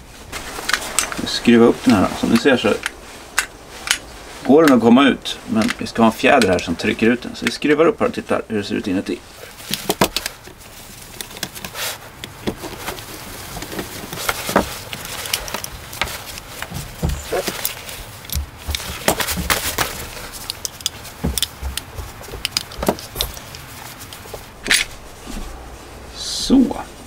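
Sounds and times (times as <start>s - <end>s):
metal lock case handled: 9.6s - 13.0s, 13.6s - 24.9s.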